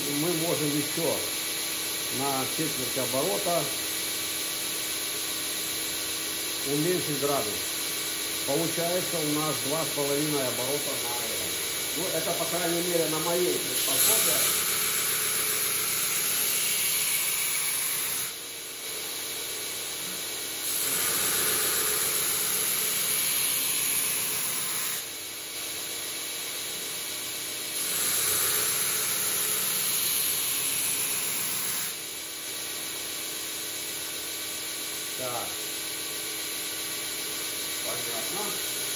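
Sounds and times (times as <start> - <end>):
belt grinder motor running: 0.0 - 38.9
belt grinder grinding steel: 8.4 - 18.4, 20.6 - 25.1, 27.8 - 32.0.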